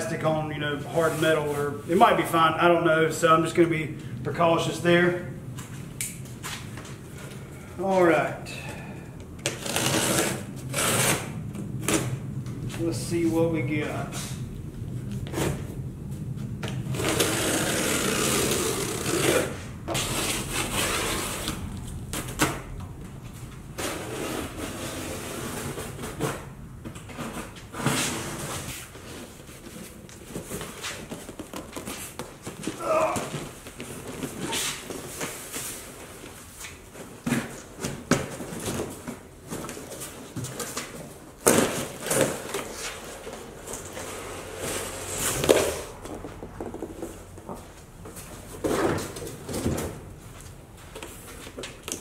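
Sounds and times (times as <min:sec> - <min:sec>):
cardboard rustling and scraping: 0:09.4 - 0:12.2, 0:16.4 - 0:22.7, 0:23.3 - 0:52.0.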